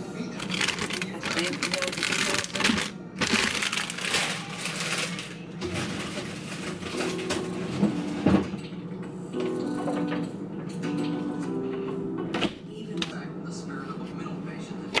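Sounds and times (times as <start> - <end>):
plastic bag crinkling: 0.4 - 6.8.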